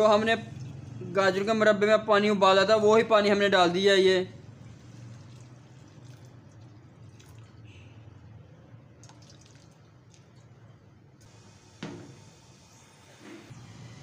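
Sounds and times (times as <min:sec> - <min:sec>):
water trickling into metal pot: 0:04.8 - 0:07.7.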